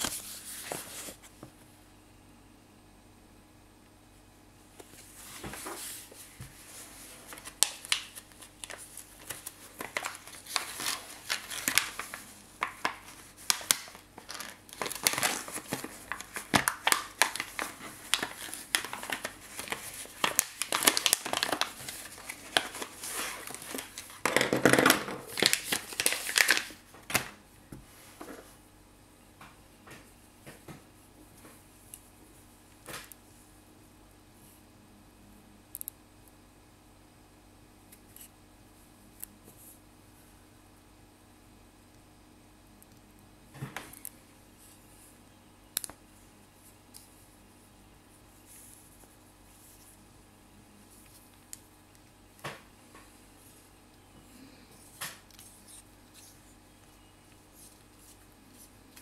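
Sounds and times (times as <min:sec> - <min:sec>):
plastic bag crinkling: 0:07.2 - 0:27.3.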